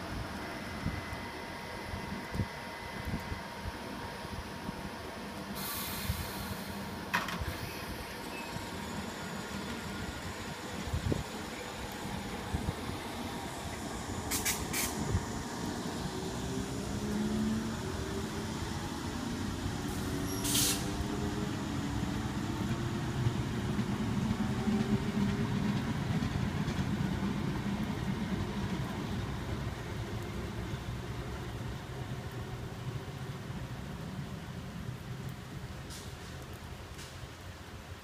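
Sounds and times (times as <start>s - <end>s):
sharp air hisses: 5.5s - 6.8s, 13.5s - 15.8s, 19.9s - 21.0s
electric train motor whine: 6.4s - 25.6s.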